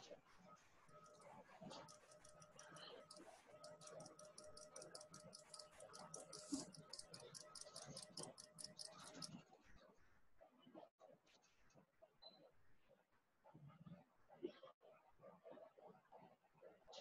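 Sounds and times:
faint steady tone: 0:00.8 - 0:09.4
rapid faint ticking: 0:01.0 - 0:09.3.

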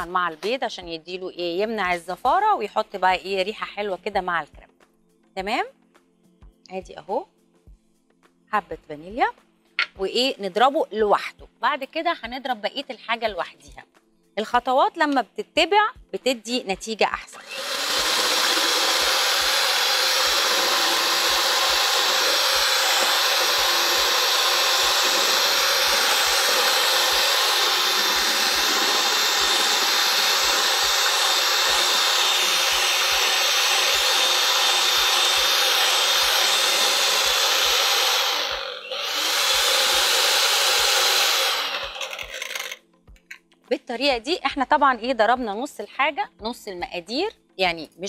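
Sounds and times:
electric hand mixer whisking: 0:17.4 - 0:42.8.

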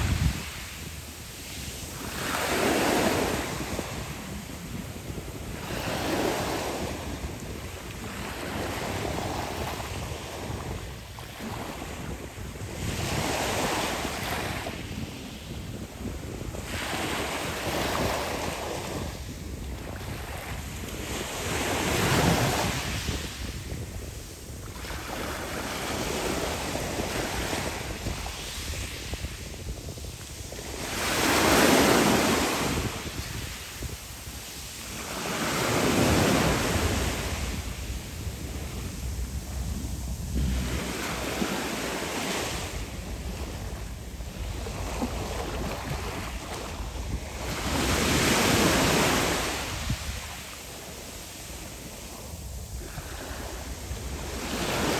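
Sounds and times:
waves washing over pebble beach: 0:00.0 - 0:10.9.

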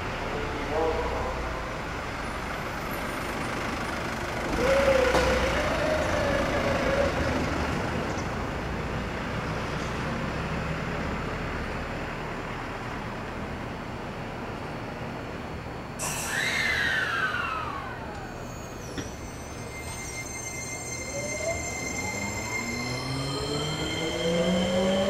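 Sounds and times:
electric train running rumble: 0:00.0 - 0:25.0
inverter whine: 0:15.8 - 0:20.2.

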